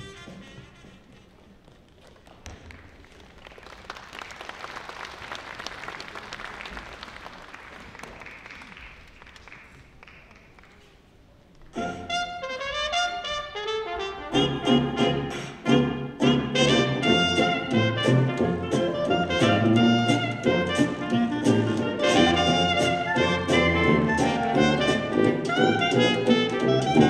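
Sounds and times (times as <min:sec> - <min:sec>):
audience applauding: 0:02.1 - 0:11.0
loud brass music: 0:11.8 - 0:27.0.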